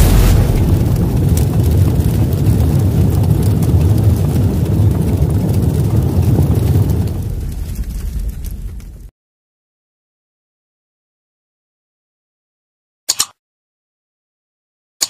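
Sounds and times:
deep rumbling: 0.0 - 9.1.

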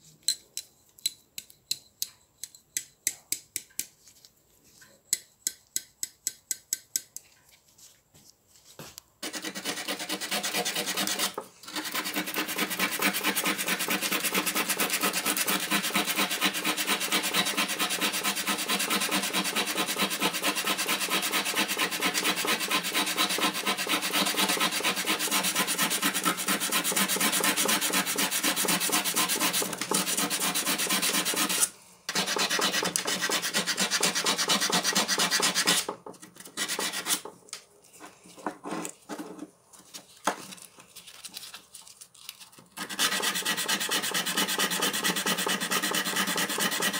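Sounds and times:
sandpaper rasping on steel: 9.2 - 37.3, 42.8 - 46.9.

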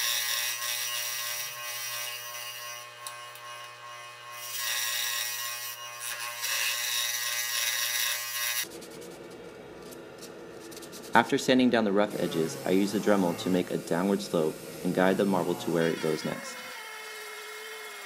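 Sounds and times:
scroll saw cutting wood: 0.0 - 8.7, 11.9 - 18.0
hand sanding with sandpaper: 10.6 - 11.3.

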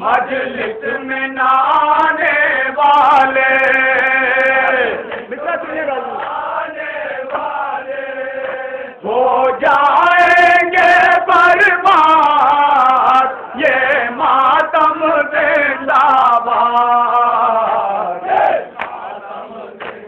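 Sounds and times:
man chanting into a microphone: 0.0 - 6.2, 8.6 - 18.3.

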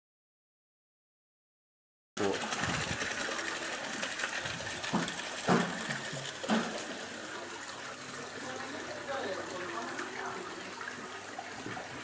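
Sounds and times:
water and beans pouring into basin: 2.2 - 7.3.

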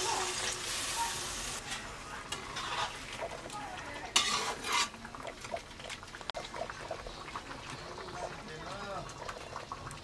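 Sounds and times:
metal spatula scraping a pan: 1.6 - 3.3, 4.1 - 5.0.

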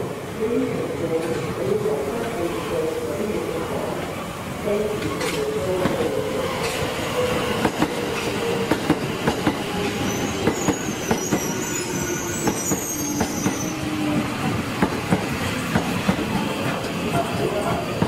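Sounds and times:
train low whine: 0.0 - 18.0
high wheel squeal: 9.7 - 14.0.

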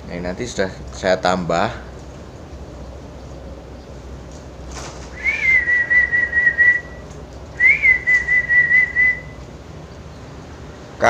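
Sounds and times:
warbling whistles: 5.0 - 9.4.

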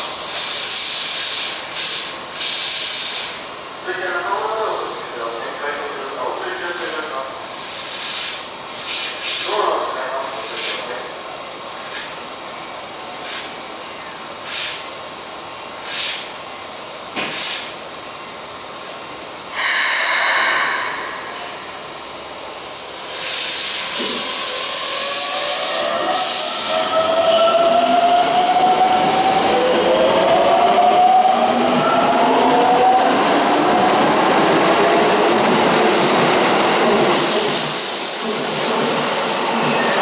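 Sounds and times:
train air brakes hissing: 0.0 - 3.5, 6.8 - 10.9, 13.1 - 13.6, 14.4 - 14.9, 15.8 - 16.4, 17.3 - 17.8, 18.8 - 26.9.

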